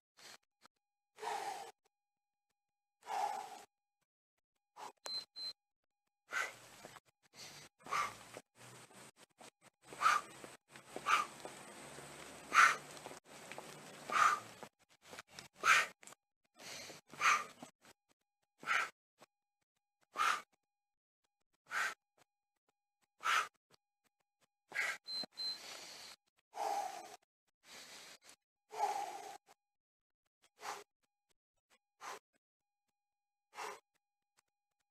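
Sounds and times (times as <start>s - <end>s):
heavy breathing: 1.2s - 1.8s, 3.0s - 3.7s, 6.3s - 11.8s, 12.4s - 16.0s, 16.6s - 17.7s, 18.6s - 19.0s, 20.1s - 20.5s, 21.7s - 22.0s, 23.2s - 23.5s, 24.7s - 29.5s, 30.6s - 30.9s, 32.0s - 32.2s, 33.5s - 33.8s
short forceful exhales: 6.3s - 6.6s, 15.6s - 15.9s, 18.6s - 18.9s, 20.2s - 20.5s, 21.7s - 22.0s, 23.2s - 23.5s, 24.8s - 25.0s, 30.6s - 30.8s, 33.6s - 33.8s.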